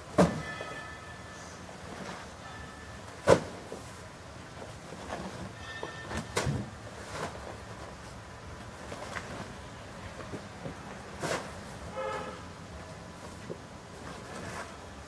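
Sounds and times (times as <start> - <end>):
sacks thudding into metal tray: 3.2 - 3.8.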